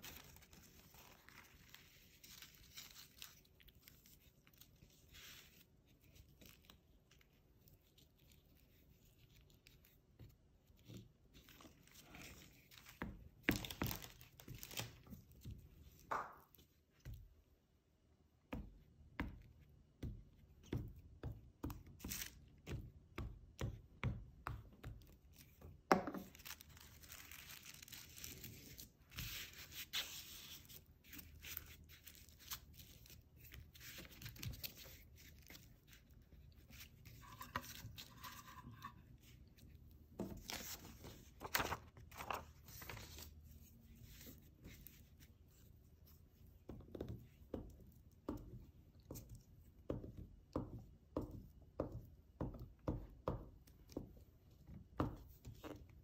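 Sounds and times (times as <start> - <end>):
tissue paper rustling: 0.0 - 9.9, 26.2 - 39.3, 40.4 - 45.6.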